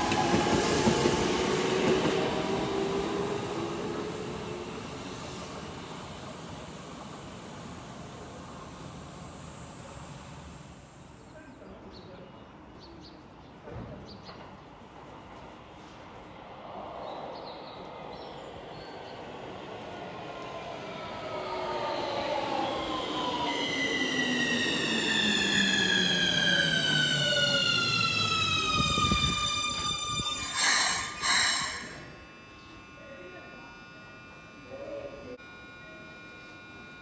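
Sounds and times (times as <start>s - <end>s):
electric train motor whine: 20.7s - 37.0s
short loud noise bursts: 30.4s - 32.1s.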